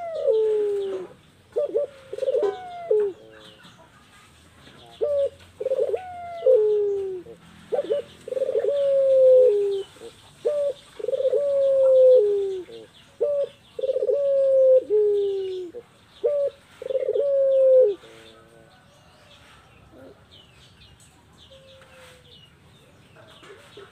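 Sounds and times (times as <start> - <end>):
dove cooing: 0.0 - 4.0, 4.8 - 18.5, 19.9 - 20.3.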